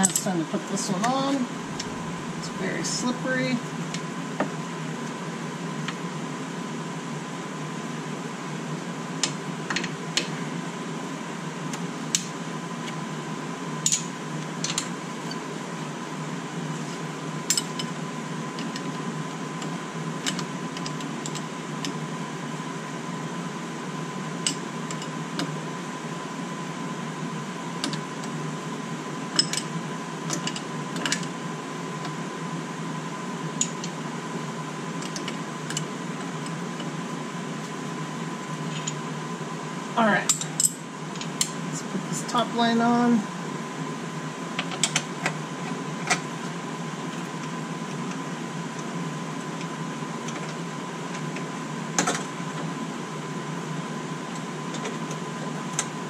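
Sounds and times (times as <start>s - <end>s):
steady mechanical hum: 0.0s - 56.0s
thin steady whine: 0.0s - 56.0s.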